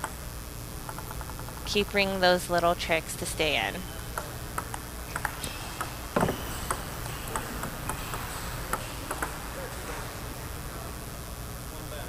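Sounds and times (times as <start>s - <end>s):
table tennis ball clicking: 0.8s - 2.8s, 4.0s - 9.9s.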